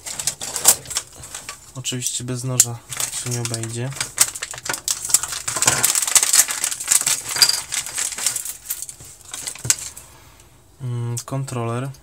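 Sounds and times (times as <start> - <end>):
plastic bag crinkling: 0.0 - 2.0, 2.6 - 10.0.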